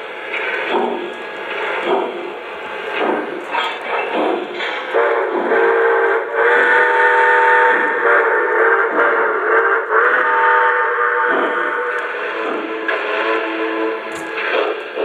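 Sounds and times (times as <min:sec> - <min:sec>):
multi-tone steam whistle: 0:00.0 - 0:15.0
rhythmic steam chuffing: 0:00.0 - 0:15.0.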